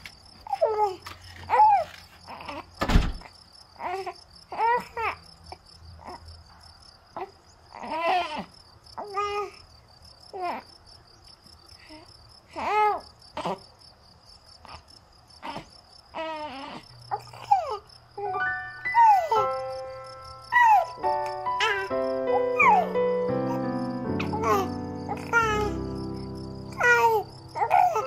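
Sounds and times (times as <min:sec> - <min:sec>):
crickets chirping: 0:00.0 - 0:28.0
baby-like coos and whimpers: 0:00.4 - 0:02.7, 0:03.8 - 0:05.2, 0:06.0 - 0:06.3, 0:07.2 - 0:09.7, 0:10.3 - 0:10.7, 0:11.8 - 0:13.7, 0:14.6 - 0:19.7, 0:20.4 - 0:28.0.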